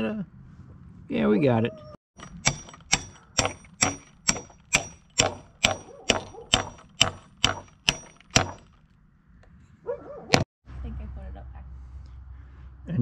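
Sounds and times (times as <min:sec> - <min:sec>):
hammer striking steel bolt: 0:02.2 - 0:08.8.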